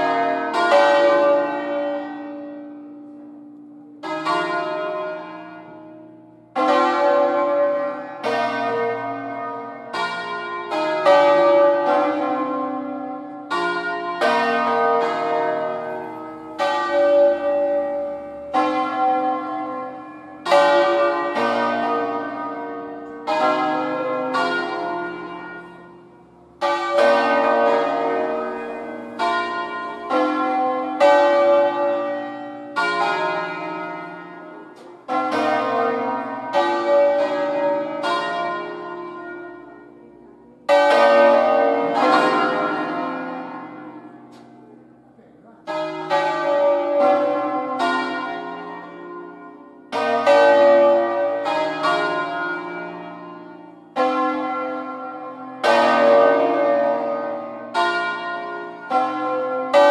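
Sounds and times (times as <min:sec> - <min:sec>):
church bells pealing: 0:00.0 - 0:59.9.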